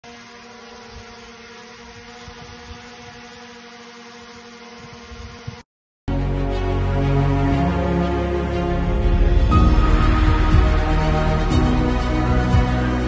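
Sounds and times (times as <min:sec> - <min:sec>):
drone propellers whirring: 0:00.0 - 0:05.6, 0:06.4 - 0:13.0
background music: 0:06.1 - 0:13.0
low rumbles: 0:07.2 - 0:13.0.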